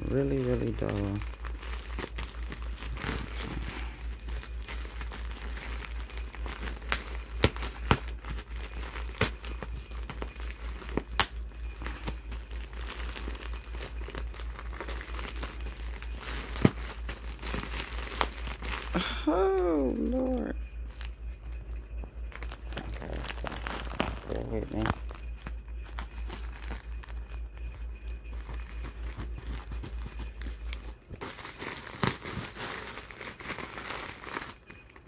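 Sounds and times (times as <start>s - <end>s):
plastic bag crinkling: 0.0s - 21.6s, 22.2s - 35.0s.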